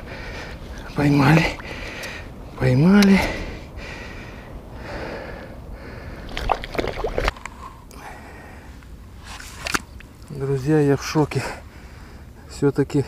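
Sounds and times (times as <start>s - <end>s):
fish thrashing and splashing: 6.3s - 7.4s.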